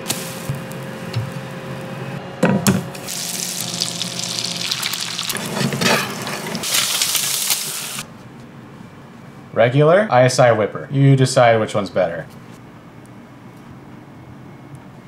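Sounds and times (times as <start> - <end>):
egg sizzling in a skillet: 3.0 - 8.0.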